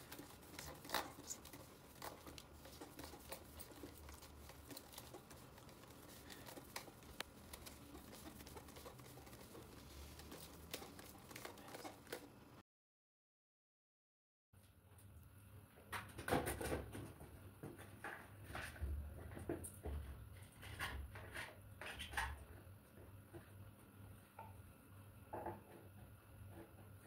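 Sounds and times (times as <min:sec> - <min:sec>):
plastic clicks and rustles: 0:00.0 - 0:12.3.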